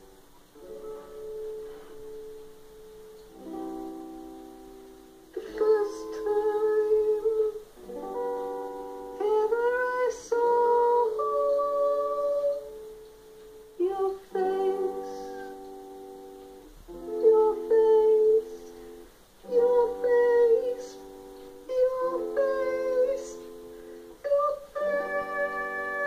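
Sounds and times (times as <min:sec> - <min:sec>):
man singing: 0:24.2 - 0:26.0.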